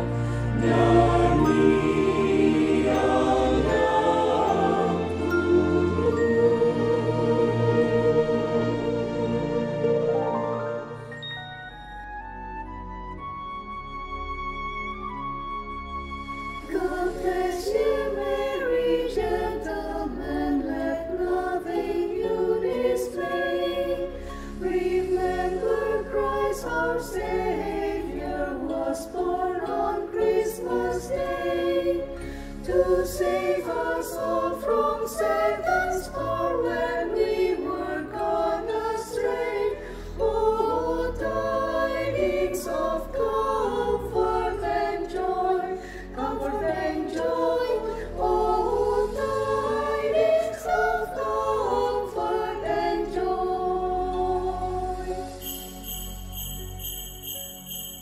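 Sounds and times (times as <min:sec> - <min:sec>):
choir singing in harmony: 0:00.0 - 0:13.2, 0:16.0 - 0:58.0.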